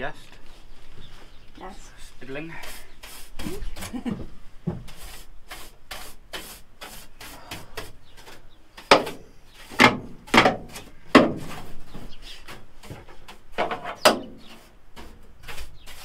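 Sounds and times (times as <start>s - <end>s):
wire brush scrubbing sheet metal: 2.4s - 4.0s, 4.9s - 10.0s, 10.6s - 16.0s.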